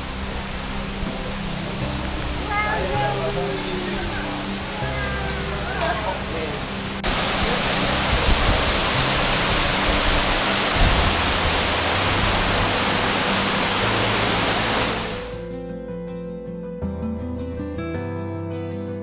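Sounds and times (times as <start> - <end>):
waterfall rushing: 0.0 - 15.4
acoustic guitar music: 1.1 - 7.0, 13.5 - 19.0.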